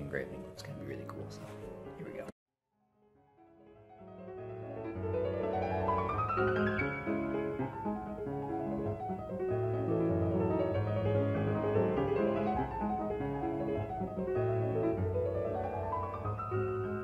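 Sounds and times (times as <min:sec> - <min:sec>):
classical solo piano music: 0:03.8 - 0:17.0.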